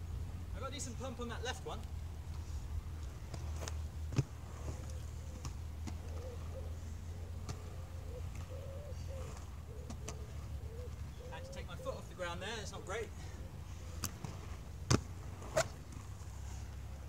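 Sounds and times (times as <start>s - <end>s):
skate wheels rolling on concrete: 0.8s - 11.2s, 13.0s - 17.0s
pigeon cooing: 4.6s - 12.2s.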